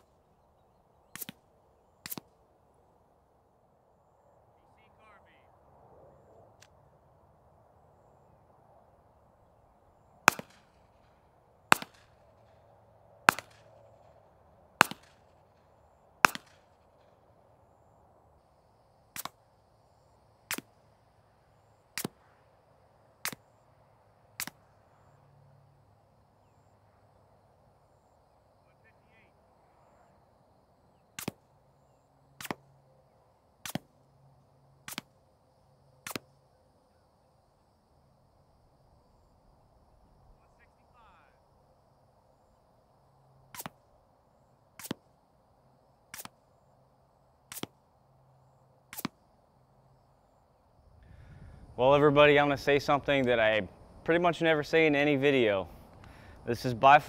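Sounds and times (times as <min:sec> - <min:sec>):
suppressed gunshots: 0:01.1 - 0:02.4, 0:10.2 - 0:12.6, 0:13.2 - 0:15.4, 0:16.2 - 0:17.2, 0:20.5 - 0:20.8, 0:36.0 - 0:36.3
gunshots with echo: 0:10.3 - 0:10.8, 0:11.7 - 0:12.2, 0:13.3 - 0:13.7, 0:14.8 - 0:15.3, 0:16.2 - 0:16.7.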